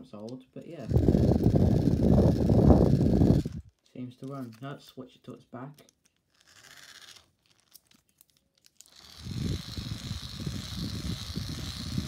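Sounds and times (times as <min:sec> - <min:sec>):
wind-up fan whirring: 0:00.8 - 0:03.8, 0:08.8 - 0:12.0.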